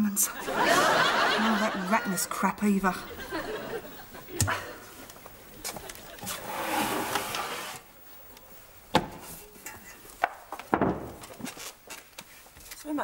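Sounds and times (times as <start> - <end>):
metal box scraping out of slot: 6.3 - 7.9.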